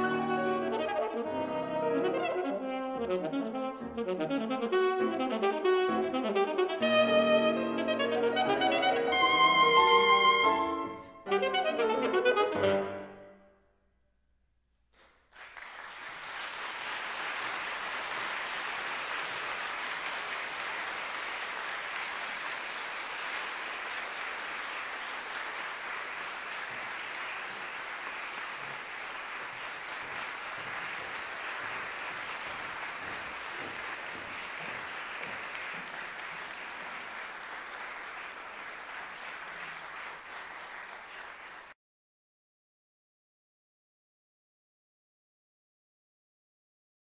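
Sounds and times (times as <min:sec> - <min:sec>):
audience applause: 0:15.0 - 0:41.8.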